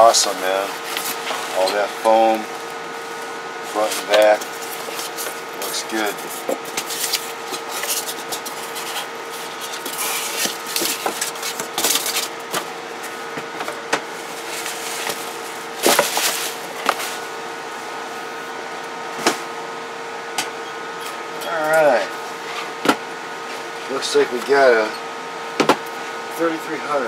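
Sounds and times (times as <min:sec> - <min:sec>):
steady hum: 0:00.0 - 0:27.0
packing material rustling and scraping: 0:00.1 - 0:13.2, 0:14.1 - 0:17.3.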